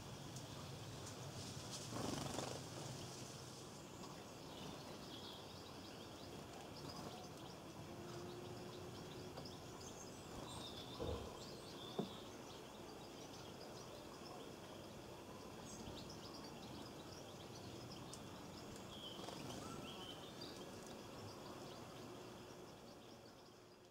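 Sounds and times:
goldfinches twittering: 4.3s - 23.8s
soft knocks: 10.9s - 12.2s.

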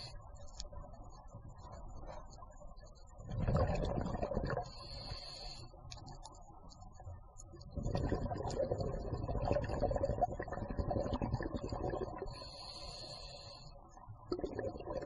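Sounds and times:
exhaled bubbles gurgling underwater: 3.1s - 5.5s, 7.5s - 15.0s
regulator hiss on inhale: 4.7s - 6.0s, 12.3s - 13.8s.

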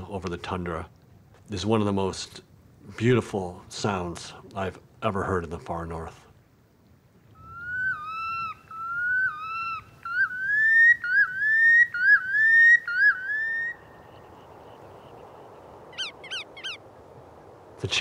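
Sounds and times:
faint steady hiss: 0.0s - 18.0s
bird whistled song: 7.4s - 15.1s, 15.9s - 16.8s.

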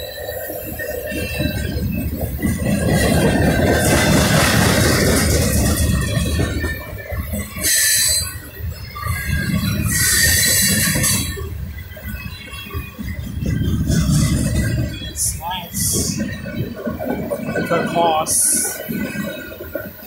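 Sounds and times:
train wheels rumbling on rails: 0.0s - 20.0s
high-pitched wheel squeal: 7.6s - 15.3s.

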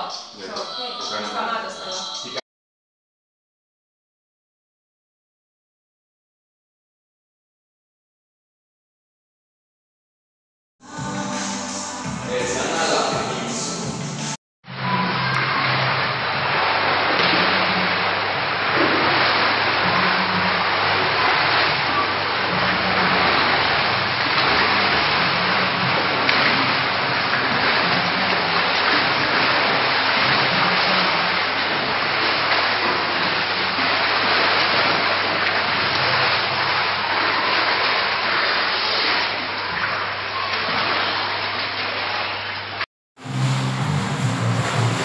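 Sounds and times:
swimmers splashing in pool: 14.8s - 45.0s
low hum: 43.2s - 45.0s.

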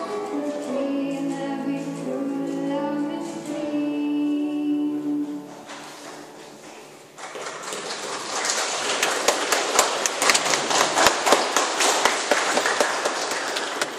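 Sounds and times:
audience applauding: 7.2s - 13.9s.

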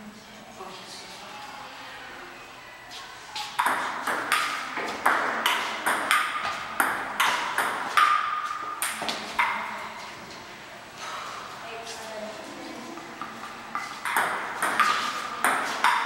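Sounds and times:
table tennis ball hits: 3.6s - 9.8s, 13.2s - 16.0s.

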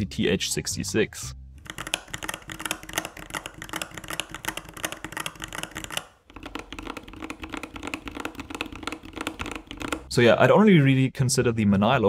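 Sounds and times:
mechanical keyboard typing: 1.6s - 10.1s.

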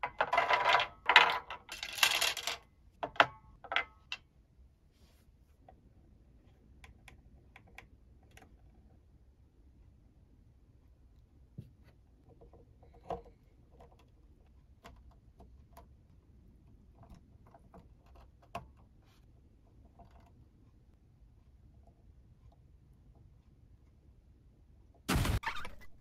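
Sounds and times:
faint clicks and taps: 10.8s - 24.1s.

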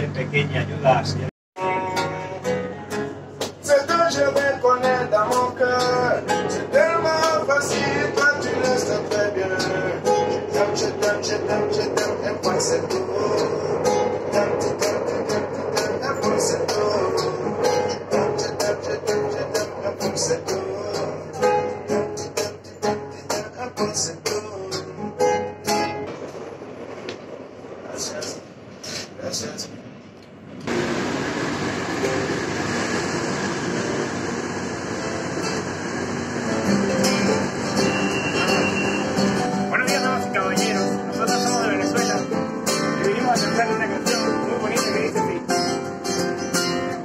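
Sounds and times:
train running noise: 0.0s - 47.0s
acoustic guitar strumming: 1.6s - 26.4s, 31.9s - 47.0s.

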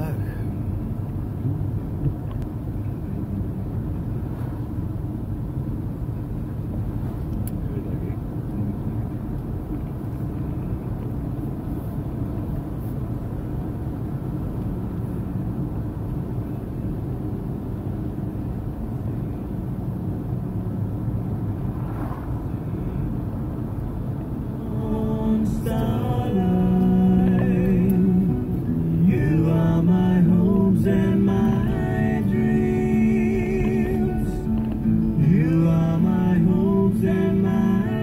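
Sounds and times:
car engine and road noise: 0.0s - 38.0s
man singing: 24.4s - 38.0s.

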